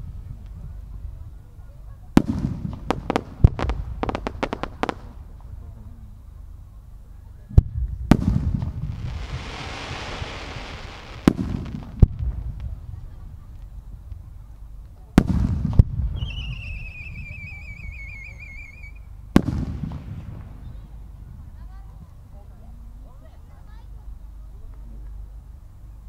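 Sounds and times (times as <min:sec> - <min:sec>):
firework crackling: 0:02.1 - 0:05.7, 0:07.8 - 0:21.0
firework booms with rumble: 0:02.1 - 0:05.8, 0:07.6 - 0:14.0, 0:15.1 - 0:17.6, 0:19.3 - 0:21.4
firework bangs: 0:02.2 - 0:05.6, 0:08.0 - 0:13.5, 0:15.1 - 0:17.6, 0:19.3 - 0:21.0
firework hissing: 0:02.5 - 0:05.4, 0:08.1 - 0:12.9.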